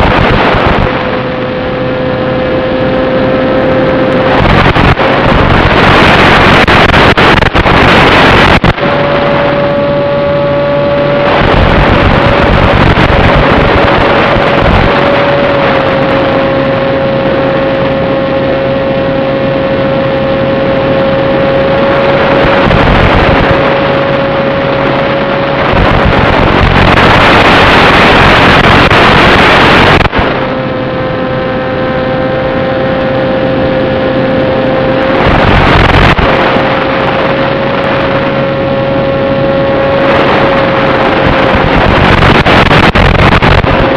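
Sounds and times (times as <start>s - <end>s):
electric motor and propeller whining: 0.0s - 43.9s
wind: 0.0s - 43.9s
radio hiss and static: 3.9s - 16.4s, 25.6s - 32.0s, 34.4s - 43.9s.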